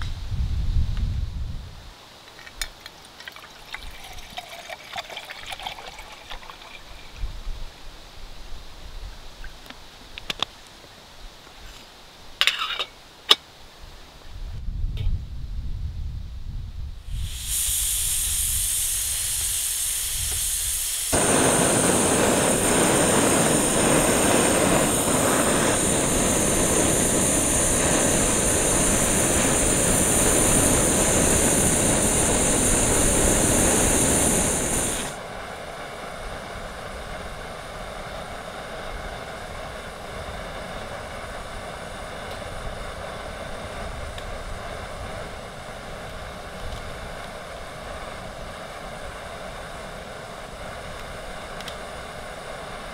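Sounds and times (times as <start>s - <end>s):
outdoor background noise: 0.0s - 52.9s
gas hissing from valve: 17.0s - 35.2s
stove burner rushing: 17.1s - 35.2s.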